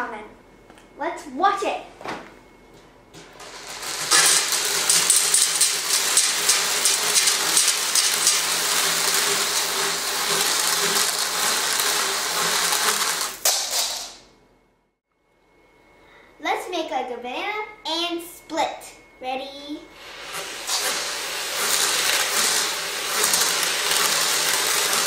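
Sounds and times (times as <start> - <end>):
beads rattling onto floor: 3.4 - 14.3, 20.7 - 25.0.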